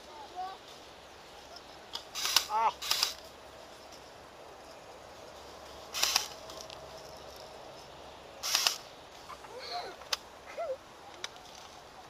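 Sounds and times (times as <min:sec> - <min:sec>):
airsoft rifle bursts: 0:02.1 - 0:03.2, 0:05.9 - 0:06.4, 0:08.4 - 0:08.8.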